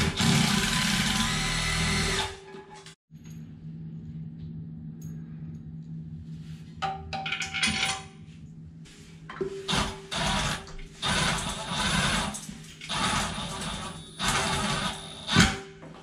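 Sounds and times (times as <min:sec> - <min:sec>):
cordless drill running: 0:00.0 - 0:02.4, 0:09.7 - 0:15.5.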